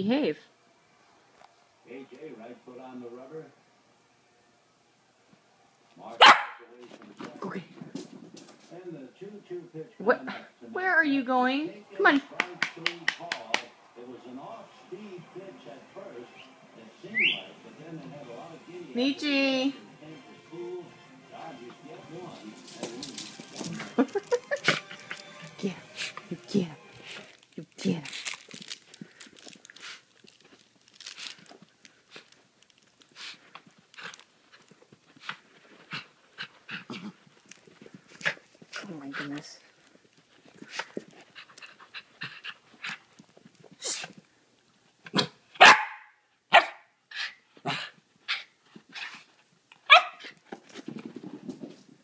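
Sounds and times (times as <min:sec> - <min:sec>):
dog barking: 0:06.2 - 0:06.6, 0:45.1 - 0:46.9, 0:49.9 - 0:50.3
paws pattering across floor: 0:06.8 - 0:08.8, 0:22.4 - 0:27.6, 0:28.2 - 0:45.1, 0:47.6 - 0:52.0.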